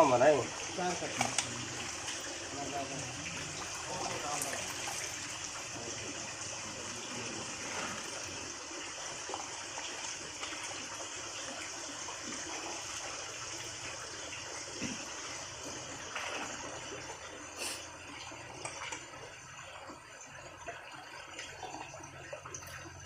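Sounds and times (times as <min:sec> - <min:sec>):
water splashing: 0:00.0 - 0:05.5
water pouring off baskets: 0:00.0 - 0:08.4.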